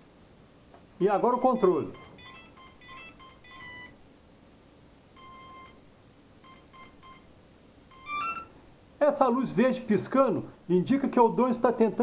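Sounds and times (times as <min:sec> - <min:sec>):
electronic startup beeps: 0:01.3 - 0:04.0, 0:05.2 - 0:05.8, 0:06.4 - 0:07.3, 0:07.9 - 0:08.5.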